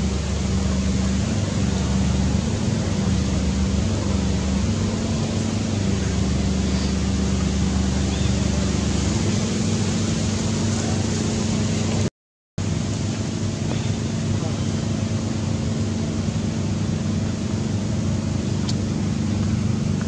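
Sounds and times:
constant hiss: 0:00.0 - 0:12.1
low mechanical hum: 0:00.0 - 0:20.0.

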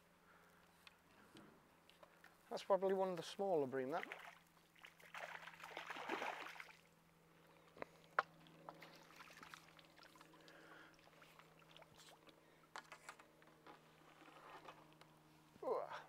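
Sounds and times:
water splashing: 0:03.8 - 0:06.9, 0:08.7 - 0:12.4
clicks and taps of fishing gear: 0:12.7 - 0:13.8.

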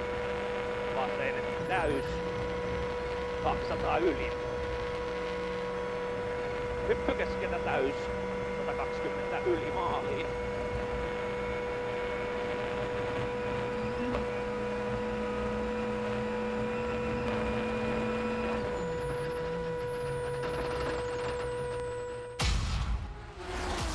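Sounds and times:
drivetrain whine: 0:00.0 - 0:23.9
rally car engine running: 0:00.0 - 0:23.9.

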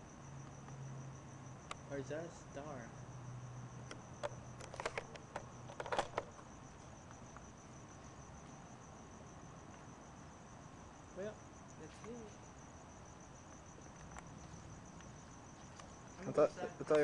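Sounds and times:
crickets chirping: 0:00.0 - 0:17.0
sharp clicks and knocks: 0:03.9 - 0:06.4.

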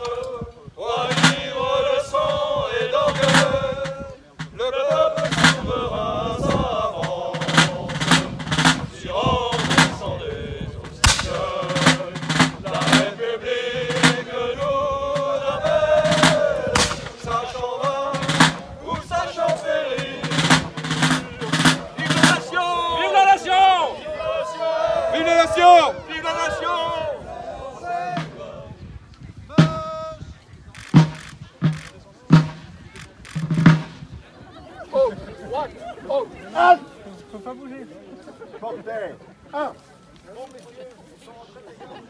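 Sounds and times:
side drum marching rhythm: 0:00.8 - 0:23.7, 0:27.8 - 0:28.6, 0:29.5 - 0:34.3
tune played over drum: 0:30.8 - 0:34.2.

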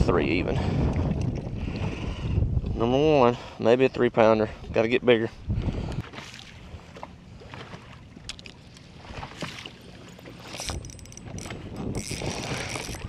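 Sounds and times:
wind: 0:00.0 - 0:13.0
waves slapping boat hull: 0:04.6 - 0:13.0.

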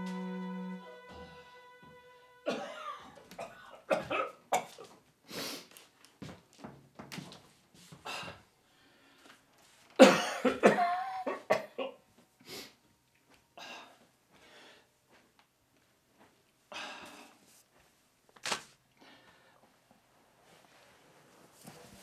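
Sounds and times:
man coughing: 0:02.5 - 0:04.8, 0:10.0 - 0:12.0
man breathing: 0:13.6 - 0:14.9.

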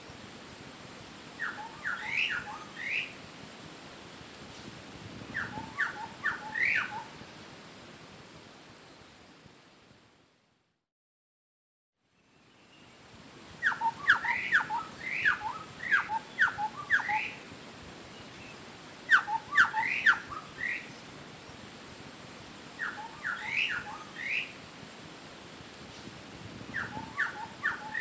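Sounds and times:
bird calling sharp whistled notes: 0:01.4 - 0:03.2, 0:05.4 - 0:07.1, 0:13.6 - 0:17.4, 0:18.2 - 0:21.0, 0:22.8 - 0:24.6, 0:26.8 - 0:28.0.

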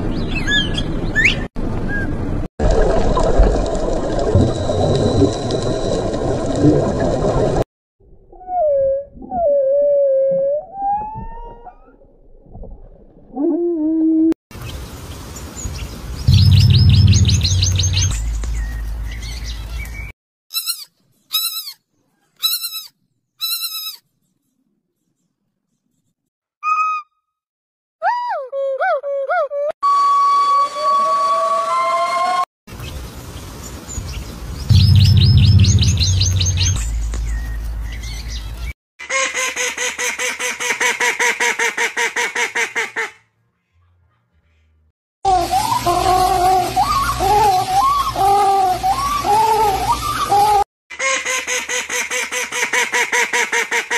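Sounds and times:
low hum and rumble: 0:16.3 - 0:19.2, 0:34.7 - 0:38.6
high chirps: 0:16.3 - 0:20.0, 0:34.7 - 0:38.6
piglet squeals: 0:20.5 - 0:21.8, 0:22.4 - 0:24.0, 0:45.5 - 0:51.2.

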